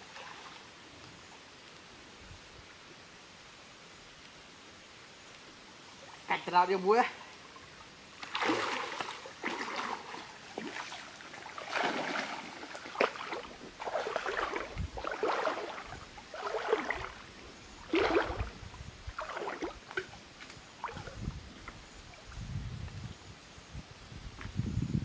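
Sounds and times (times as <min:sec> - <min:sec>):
water splashing from wading: 0:07.3 - 0:21.3.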